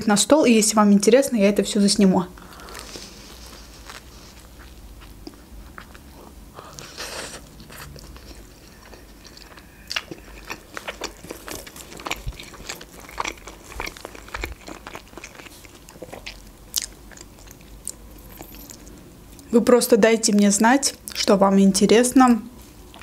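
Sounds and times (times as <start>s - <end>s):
person chewing with crunches: 2.4s - 19.5s, 22.7s - 23.0s.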